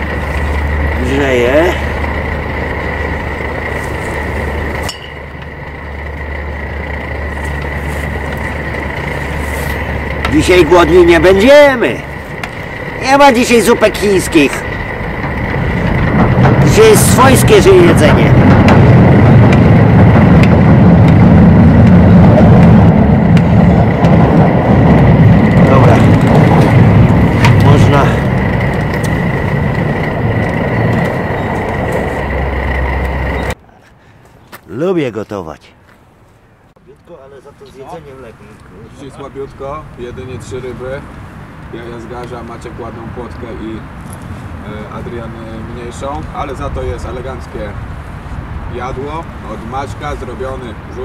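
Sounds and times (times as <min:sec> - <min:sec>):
gas stove burning: 0:00.0 - 0:33.6
loud steady low rumble: 0:00.0 - 0:33.6.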